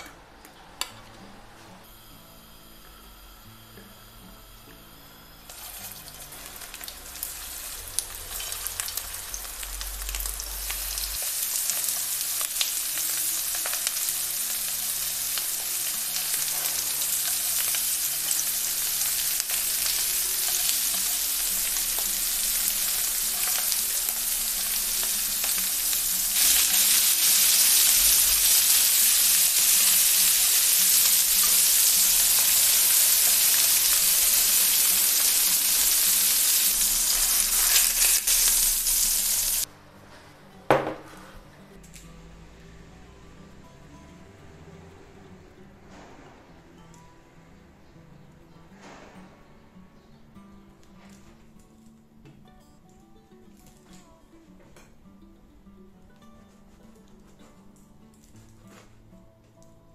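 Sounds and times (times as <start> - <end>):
burger patties sizzling in grill pan: 1.9 - 39.7.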